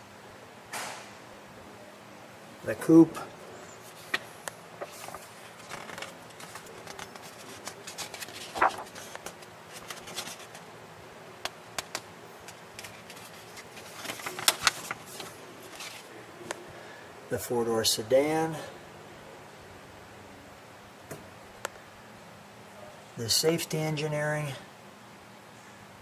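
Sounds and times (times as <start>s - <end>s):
pages being turned: 3.8s - 10.7s, 11.4s - 16.6s
paper rustling: 3.8s - 10.7s, 11.8s - 16.6s.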